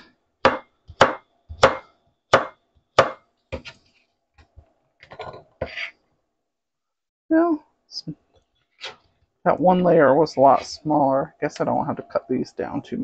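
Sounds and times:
knife chopping vegetables: 0.4s - 3.8s.

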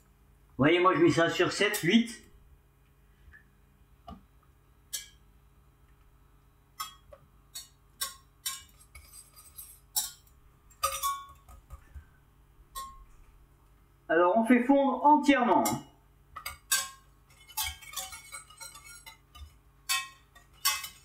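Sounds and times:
whisk clinking in saucepan: 16.4s - 21.0s.

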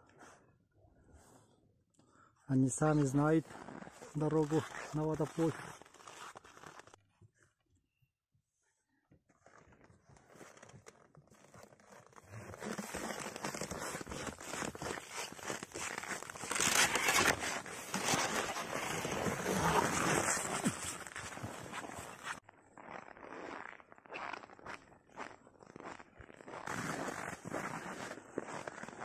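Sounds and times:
footsteps crunching on frozen snow: 2.8s - 7.0s, 11.4s - 29.0s.

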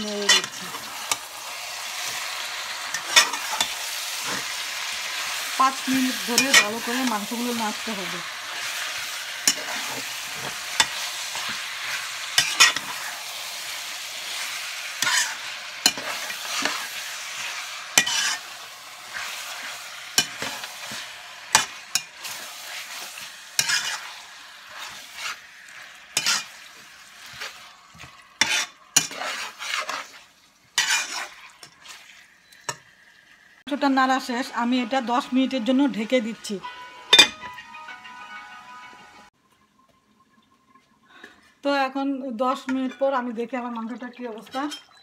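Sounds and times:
metal spatula scraping pan: 0.0s - 32.9s
meat sizzling in oil: 0.0s - 37.3s.

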